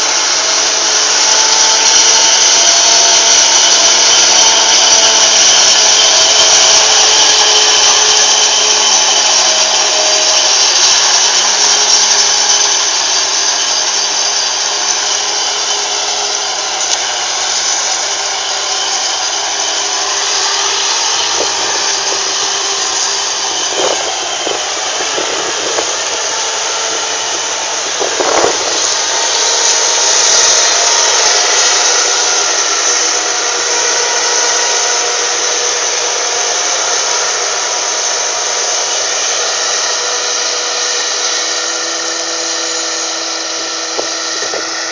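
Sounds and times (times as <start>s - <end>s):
harvester engines with high whine: 0.0s - 44.9s.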